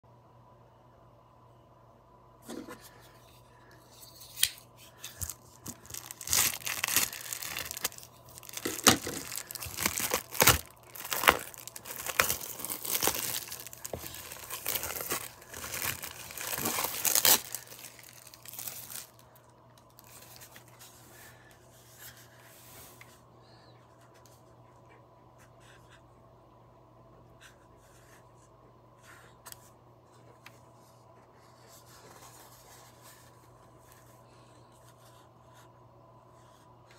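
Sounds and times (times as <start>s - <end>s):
rustling as box is handled: 5.1s - 19.2s
plastic wrap crinkling and tearing: 5.1s - 20.8s.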